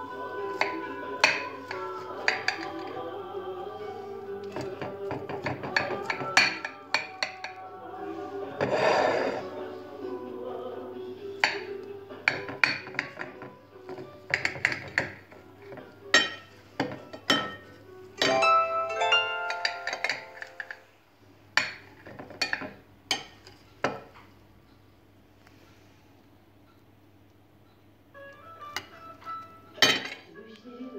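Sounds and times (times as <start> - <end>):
utensil clinking against glass dish: 16.1 - 17.6, 29.8 - 30.3.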